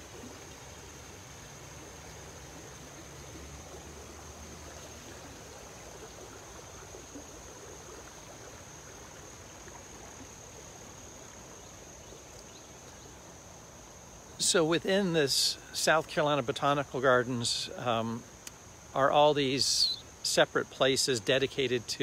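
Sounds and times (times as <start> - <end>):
water rushing over rocks: 0.0 - 11.6
insect drone: 0.0 - 22.0.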